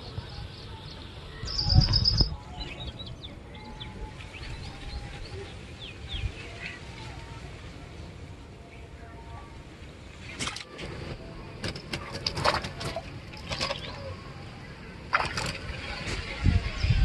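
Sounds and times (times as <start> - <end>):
wind rumble on microphone: 0.0 - 7.6, 15.1 - 17.0.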